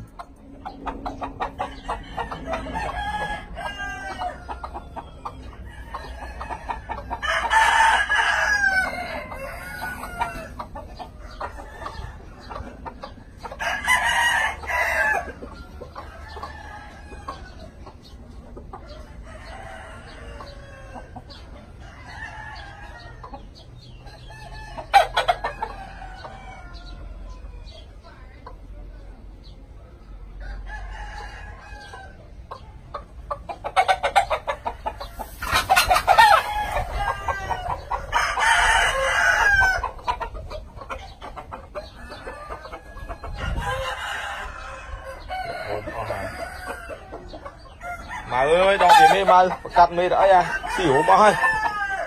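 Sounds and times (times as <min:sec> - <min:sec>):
chickens clucking: 0:00.0 - 0:52.0
rooster crowing: 0:01.8 - 0:04.6, 0:07.2 - 0:10.6, 0:13.6 - 0:15.3, 0:35.8 - 0:40.0, 0:41.9 - 0:47.1, 0:50.2 - 0:52.0.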